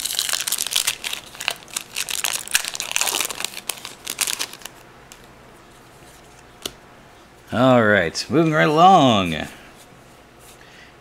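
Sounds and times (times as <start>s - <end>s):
foil wrapper crinkling and tearing: 0.0s - 5.3s.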